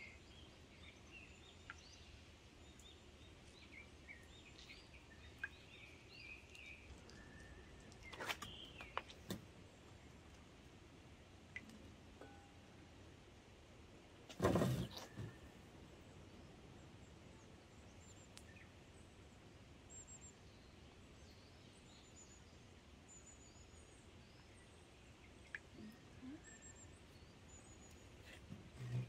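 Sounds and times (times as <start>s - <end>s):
small birds chirping: 0.0s - 10.6s, 19.9s - 29.0s.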